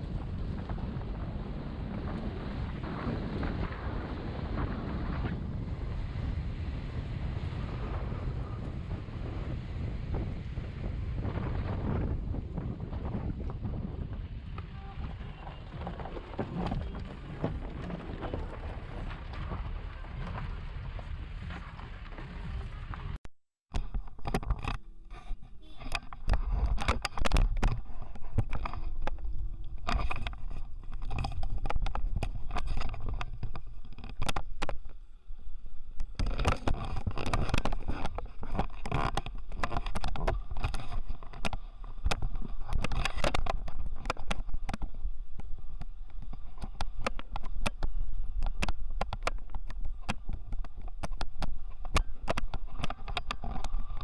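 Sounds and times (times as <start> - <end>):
car rumbling over gravel: 10.2 - 24.7.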